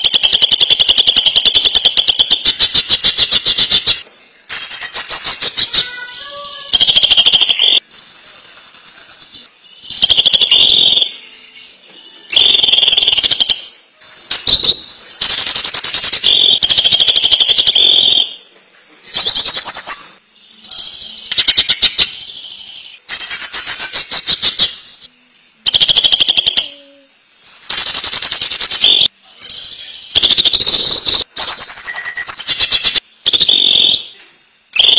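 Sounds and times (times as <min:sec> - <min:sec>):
quiet bird chattering: 0:00.0 - 0:18.4, 0:19.0 - 0:34.9
bird song with rattling notes: 0:19.0 - 0:25.1, 0:27.5 - 0:33.0.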